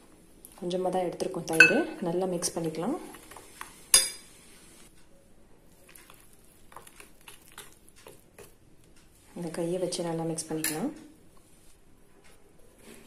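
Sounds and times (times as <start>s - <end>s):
hand mixing in a bowl: 5.5s - 13.0s.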